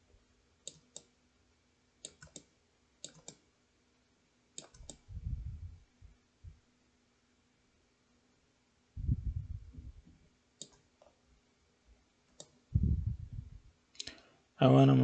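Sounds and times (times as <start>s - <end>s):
computer mouse clicking: 0.6s - 1.1s, 2.0s - 3.4s, 4.6s - 5.0s, 10.6s - 11.1s, 12.3s - 12.6s
low dull rumble: 4.9s - 6.6s, 9.0s - 10.1s, 12.7s - 13.7s.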